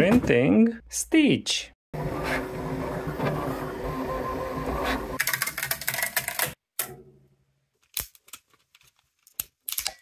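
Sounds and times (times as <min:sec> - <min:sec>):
printer motors whining: 0:02.0 - 0:05.2.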